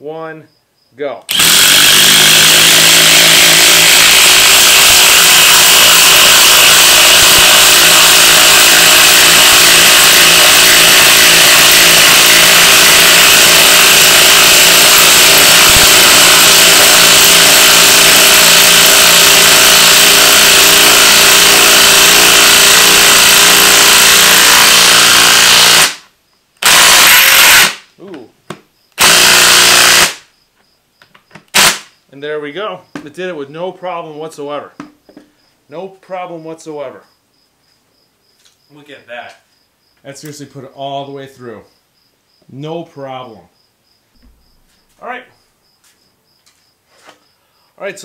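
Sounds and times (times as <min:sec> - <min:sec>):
impact wrench hammering: 0:01.3 - 0:26.0.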